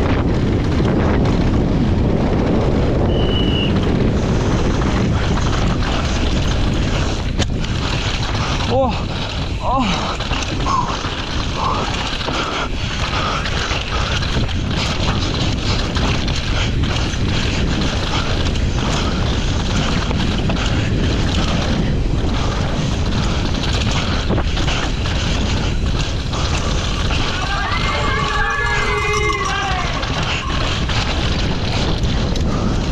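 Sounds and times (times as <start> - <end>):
bike knocks and rattles: 0.0 - 28.5, 29.4 - 32.9
tyres on dirt trail: 0.0 - 32.9
wind buffeting microphone: 0.0 - 32.9.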